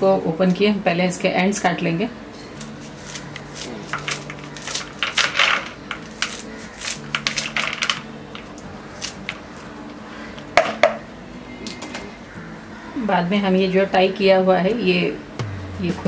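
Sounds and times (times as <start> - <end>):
scissors snipping stems: 2.6 - 9.4.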